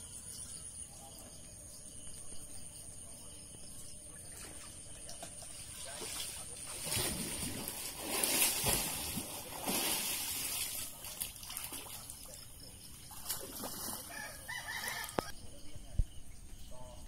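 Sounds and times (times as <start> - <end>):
water splashing and sloshing: 3.8 - 14.5.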